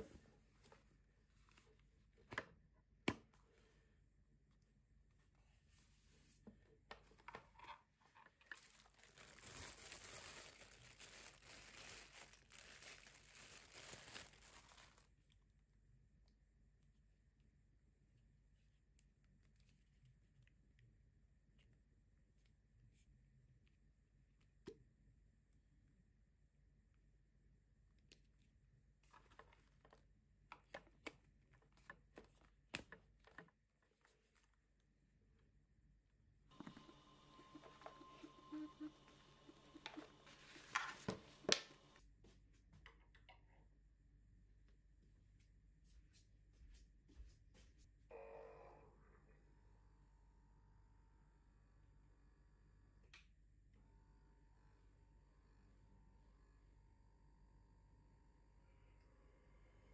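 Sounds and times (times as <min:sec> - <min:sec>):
bubble wrap crinkling: 0:08.2 - 0:15.2, 0:36.5 - 0:42.0.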